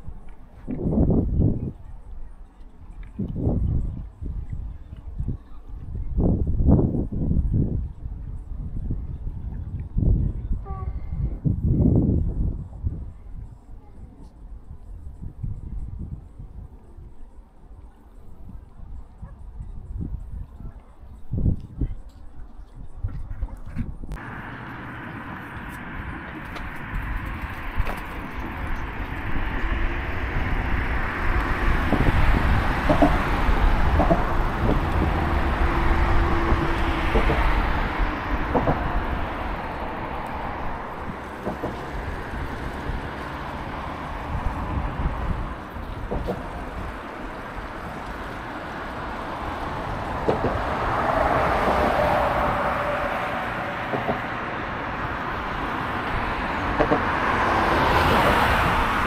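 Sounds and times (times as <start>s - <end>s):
road traffic: 0.0s - 22.9s, 23.7s - 59.0s
wind on microphone: 0.0s - 59.0s
vehicle passing: 24.2s - 59.0s.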